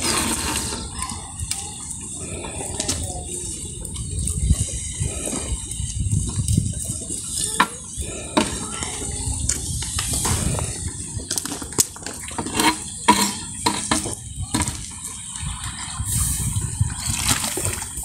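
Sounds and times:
wood knocking on metal pot: 0:12.4 - 0:14.7
liquid sloshing: 0:16.8 - 0:18.0.

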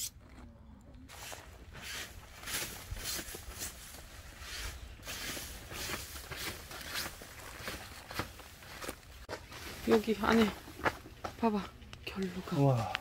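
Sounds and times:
brush sweeping snow off fabric: 0:01.1 - 0:03.8.

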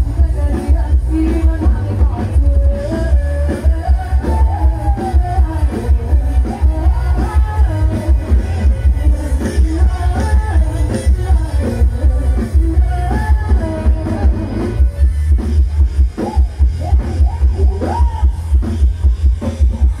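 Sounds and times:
woman singing: 0:00.0 - 0:14.8
heavy bass beat: 0:00.0 - 0:20.0
live band music: 0:00.0 - 0:20.0.

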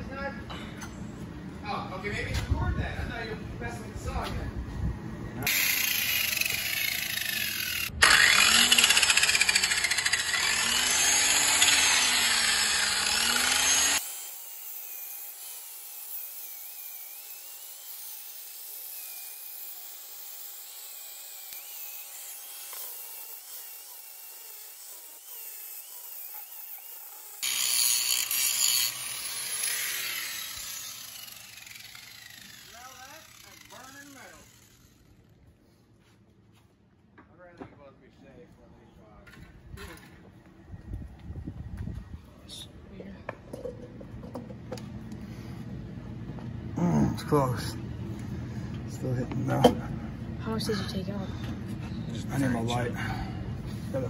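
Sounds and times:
angle grinder grinding metal: 0:05.5 - 0:35.3.

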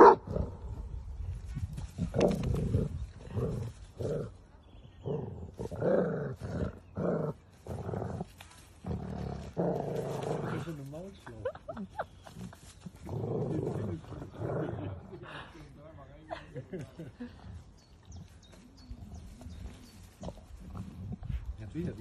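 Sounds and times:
dogs growling: 0:01.8 - 0:11.2, 0:11.9 - 0:15.5, 0:17.3 - 0:21.6.

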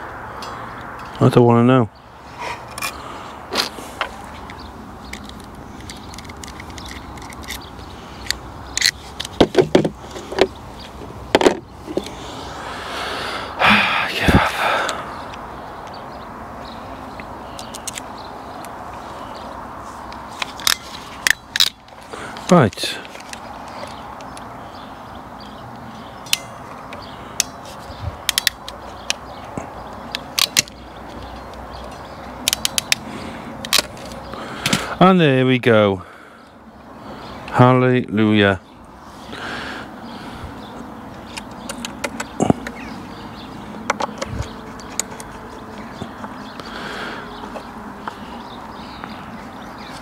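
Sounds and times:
steady outdoor hiss: 0:00.0 - 0:50.0
metal and plastic tool clicks: 0:28.3 - 0:29.2, 0:30.1 - 0:30.8, 0:32.4 - 0:33.0.

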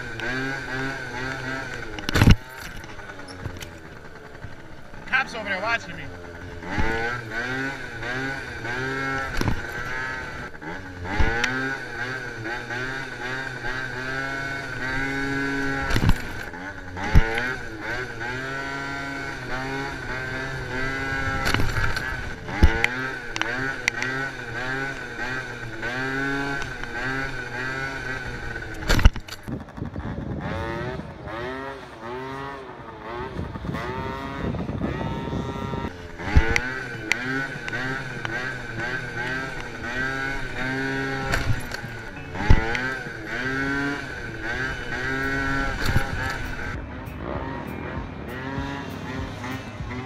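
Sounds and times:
scooter engine revving: 0:00.0 - 0:50.0.

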